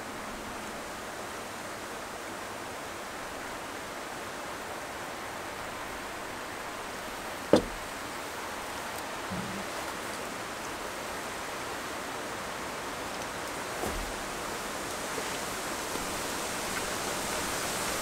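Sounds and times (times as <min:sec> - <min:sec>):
river rushing: 0:00.0 - 0:18.0
sharp knock: 0:07.5 - 0:07.8.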